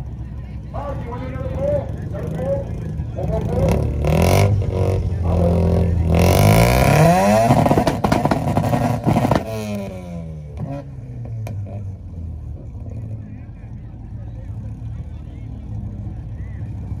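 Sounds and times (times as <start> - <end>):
car engine revving and popping: 3.1 - 13.0.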